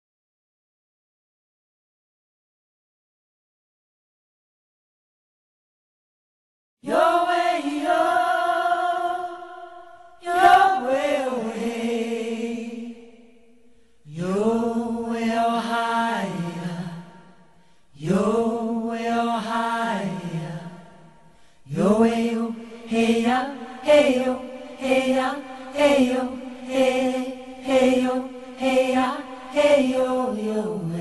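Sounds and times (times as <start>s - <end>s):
chanted singing: 6.8s - 13.4s, 14.1s - 17.4s, 18.0s - 21.0s, 21.7s - 31.0s.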